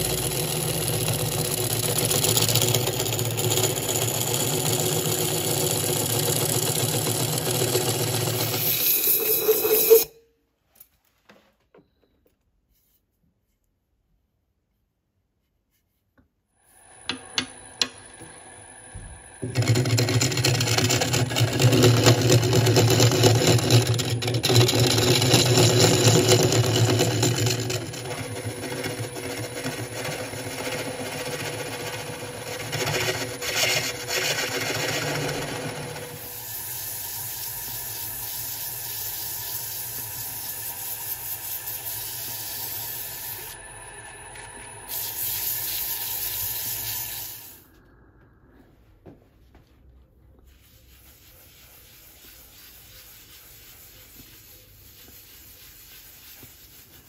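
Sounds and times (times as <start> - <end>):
hollowing tool rasping on wood: 0.0 - 10.1, 19.4 - 36.3
wood lathe humming: 0.0 - 10.1, 16.8 - 47.4.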